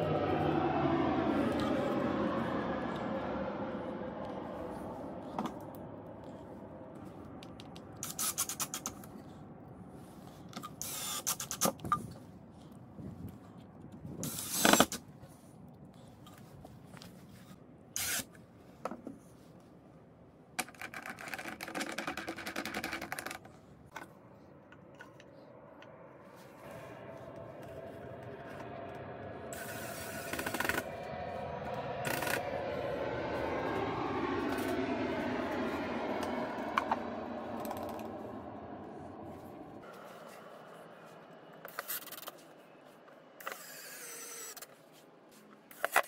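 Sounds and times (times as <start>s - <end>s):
cordless drill driving screws: 10.8s - 11.7s, 14.2s - 15.0s, 18.0s - 18.2s.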